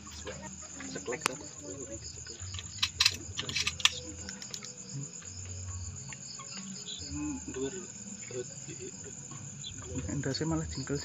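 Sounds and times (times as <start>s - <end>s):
crickets chirring: 0.0s - 11.0s
sharp clicks: 2.5s - 4.8s.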